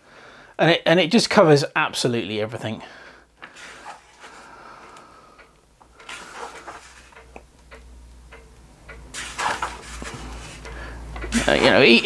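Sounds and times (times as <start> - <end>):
book pages rustling: 3.4 - 4.4, 6.0 - 7.2, 9.2 - 10.7.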